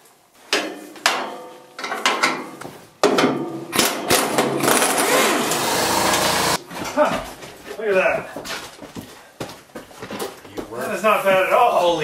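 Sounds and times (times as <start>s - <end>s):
handheld power tool running: 4.6s - 6.6s.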